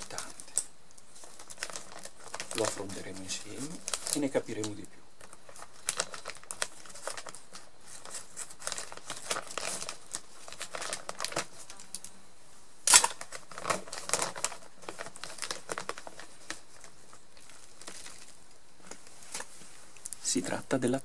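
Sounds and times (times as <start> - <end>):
plastic sack crinkling: 0.0 - 12.1, 12.8 - 20.7
sharp loud crackle: 12.8 - 14.5.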